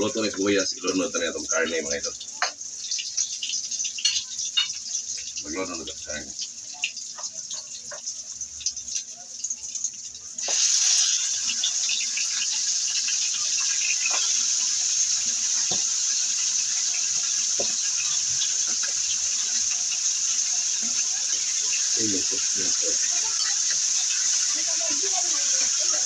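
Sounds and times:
meat sizzling in hot oil: 0.0s - 26.0s
utensils knocking on pan: 13.9s - 14.5s, 15.5s - 16.0s, 17.1s - 21.8s.

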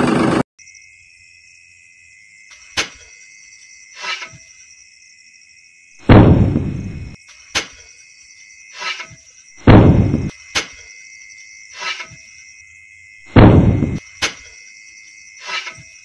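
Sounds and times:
heavy thuds: 6.0s - 7.2s, 9.6s - 10.3s, 13.3s - 14.0s.

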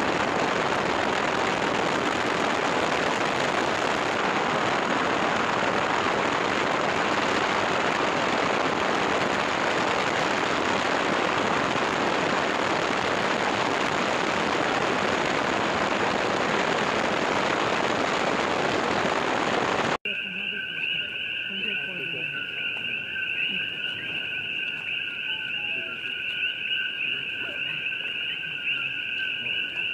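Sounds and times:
lava fountain rushing: 0.0s - 20.0s.

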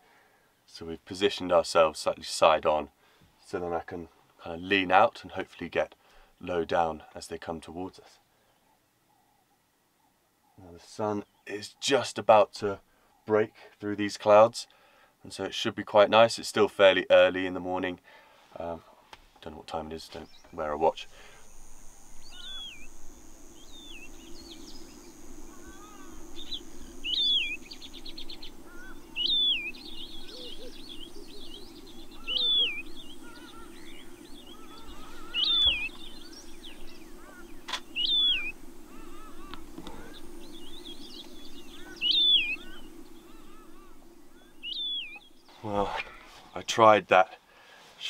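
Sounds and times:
steady low hum: 19.8s - 46.7s
bird whistled call: 22.2s - 23.0s, 25.6s - 45.3s
sharp click: 37.7s - 37.9s.

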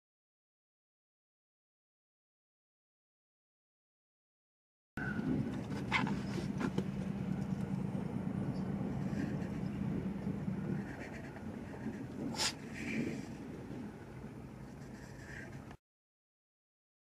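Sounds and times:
diesel locomotive engine drone: 5.0s - 15.8s.

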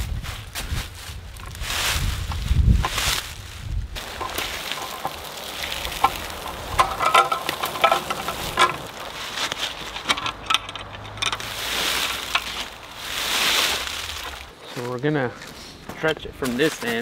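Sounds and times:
dry leaves crunching: 0.0s - 17.0s
wire mesh clinking: 4.0s - 14.4s.

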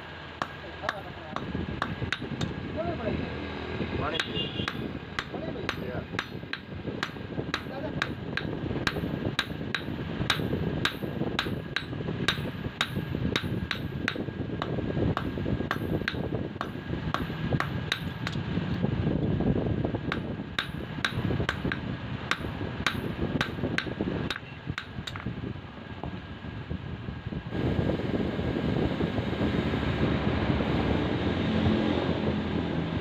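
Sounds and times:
hammer striking steel on anvil: 0.4s - 2.5s, 4.2s - 18.4s, 20.1s - 25.3s
low rumble: 1.1s - 33.0s.

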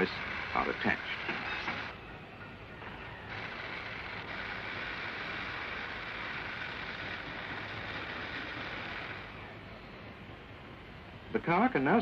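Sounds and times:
machinery rushing hiss: 0.0s - 1.9s.

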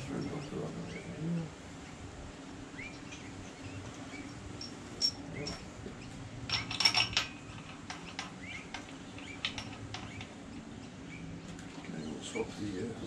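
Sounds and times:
metal bolts clinking: 4.6s - 5.6s, 6.5s - 10.3s.

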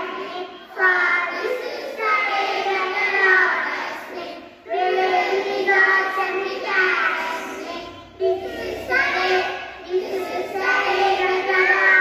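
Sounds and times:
young children singing: 0.0s - 12.0s.

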